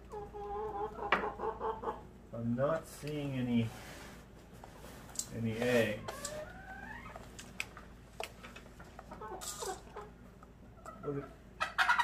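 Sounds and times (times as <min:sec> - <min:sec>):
hens clucking: 0:00.0 - 0:02.3, 0:05.6 - 0:12.0.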